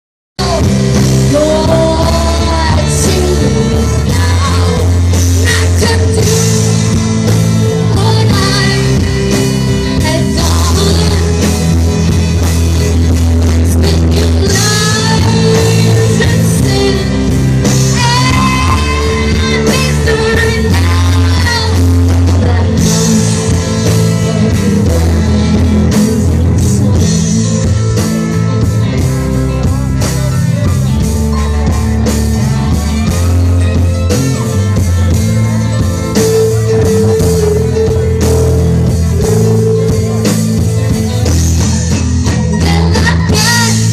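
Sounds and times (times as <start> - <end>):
person singing: 0.4 - 11.9, 13.5 - 34.7, 41.6 - 43.9
live rock band: 0.4 - 43.9.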